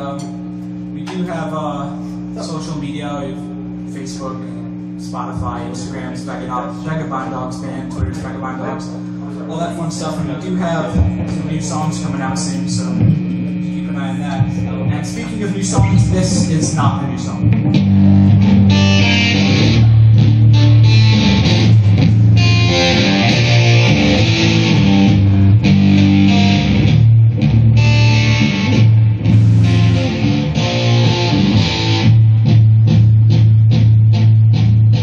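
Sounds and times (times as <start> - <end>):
electric guitar strumming: 0.0 - 35.0
bass guitar low notes: 7.9 - 35.0.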